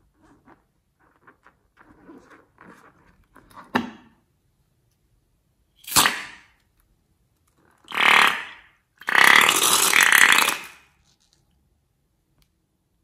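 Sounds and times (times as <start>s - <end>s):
slime squirting from balloon: 5.8s - 6.5s, 7.9s - 10.9s.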